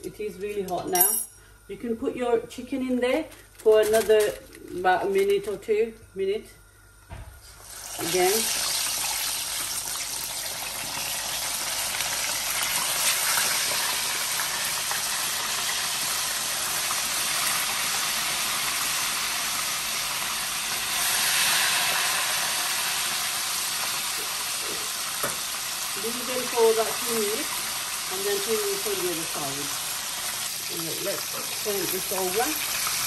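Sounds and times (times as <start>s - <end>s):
chicken sizzling in hot oil: 7.6s - 33.0s.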